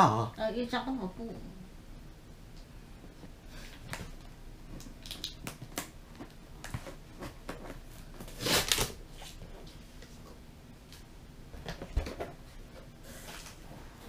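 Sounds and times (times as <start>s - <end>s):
cardboard box tearing open: 8.3s - 9.0s
scissors scraping packing tape: 8.3s - 9.0s.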